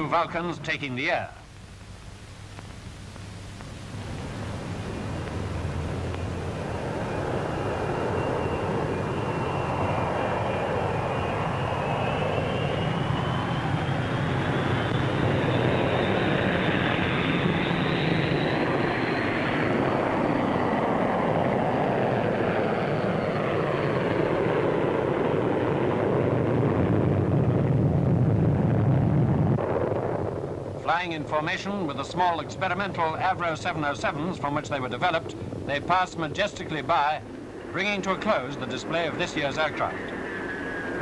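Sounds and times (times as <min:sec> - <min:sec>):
jet engine noise: 0:00.0 - 0:41.0
high whine rising in pitch: 0:03.7 - 0:19.4.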